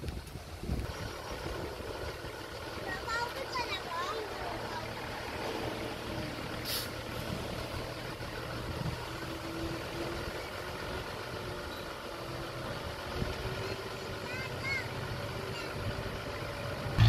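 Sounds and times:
heavy diesel engine running: 0.1s - 17.0s
short hiss: 6.6s - 7.0s.

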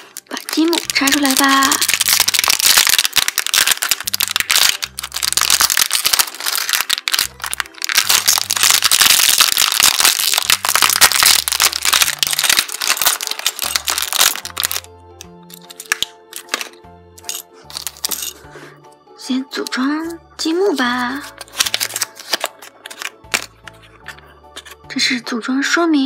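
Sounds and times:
plastic bag crinkling: 0.0s - 14.9s, 15.5s - 18.4s, 20.7s - 24.8s
plastic bricks rattling: 0.0s - 14.9s, 15.5s - 18.3s
light background music: 0.0s - 26.0s.

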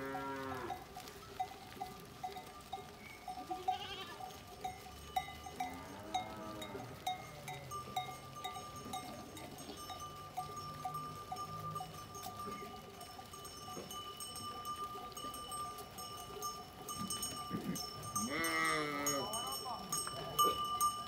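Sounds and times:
animal bells clinking: 0.0s - 21.0s
sheep bleating: 3.4s - 4.4s, 17.5s - 19.4s
hooves clicking on cobblestones: 7.0s - 18.2s.

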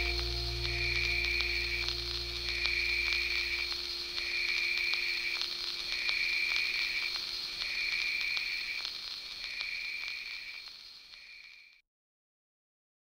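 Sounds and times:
low hum: 0.0s - 6.0s.

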